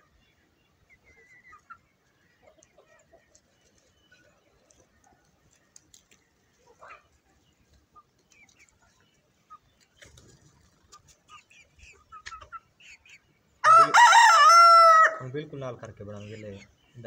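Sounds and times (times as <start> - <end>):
chickens clucking: 0.0 - 17.0
rooster crowing: 13.6 - 15.2.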